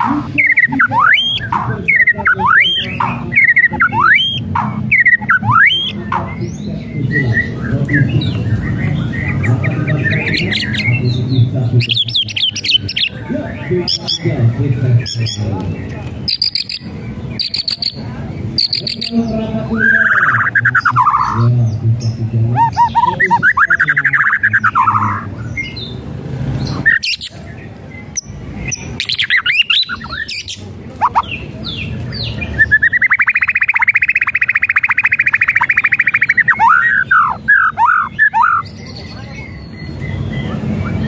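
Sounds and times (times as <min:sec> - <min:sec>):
bird whistling with warbles: 0:00.0 - 0:06.0, 0:22.5 - 0:25.8, 0:29.0 - 0:31.3, 0:32.4 - 0:41.0
bird rapid trill: 0:00.0 - 0:11.2, 0:18.6 - 0:21.5, 0:22.2 - 0:26.0, 0:28.2 - 0:41.0.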